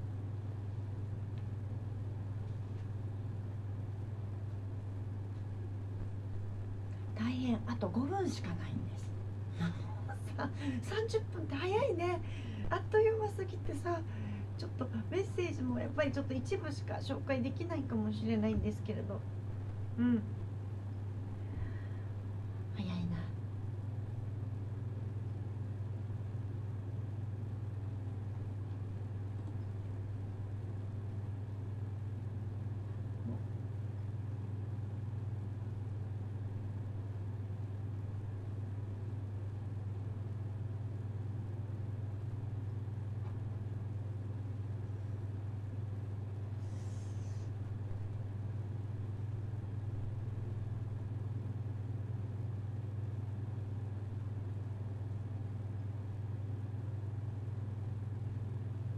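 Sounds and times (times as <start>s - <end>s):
steady low hum: 0.0s - 58.9s
faint hiss: 46.5s - 47.6s.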